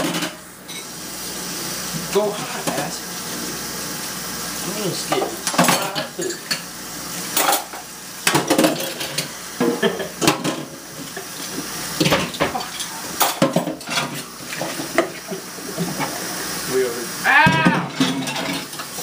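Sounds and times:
running kitchen tap: 0:00.0 - 0:19.0
dishes and cutlery clattering: 0:05.1 - 0:06.7, 0:07.3 - 0:11.2, 0:12.0 - 0:16.2, 0:17.5 - 0:18.9.

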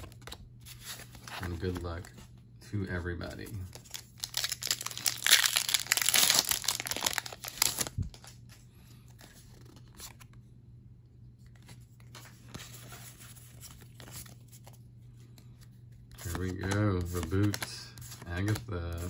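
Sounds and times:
faint rustling of cards: 0:00.0 - 0:19.0
foil wrapper tearing and crinkling: 0:03.9 - 0:08.0.

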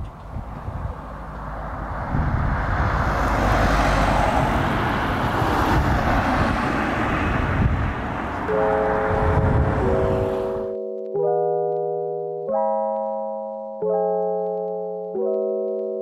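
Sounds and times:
road traffic rushing: 0:00.0 - 0:10.7.

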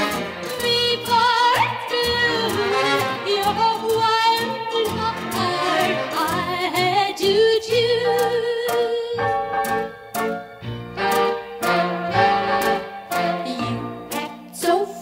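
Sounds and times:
band beat: 0:00.0 - 0:07.0, 0:09.5 - 0:14.2
string section melody: 0:00.0 - 0:07.1, 0:09.2 - 0:14.5.

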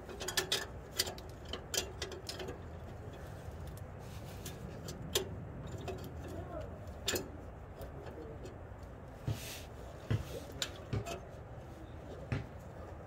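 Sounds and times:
metal clamp clicks and knocks: 0:00.0 - 0:03.8, 0:04.4 - 0:08.9, 0:10.6 - 0:11.3.

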